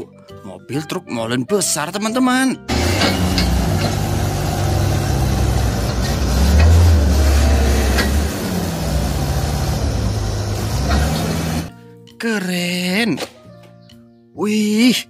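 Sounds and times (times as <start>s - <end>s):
diesel truck engine idling: 2.7s - 11.7s.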